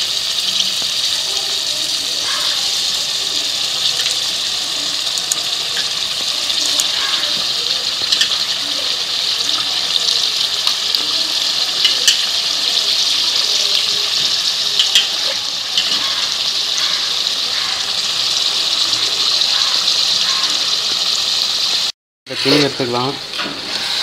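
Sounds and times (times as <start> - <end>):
sharp crackles: 0.0 - 17.8
food sizzling in hot oil: 0.0 - 24.0.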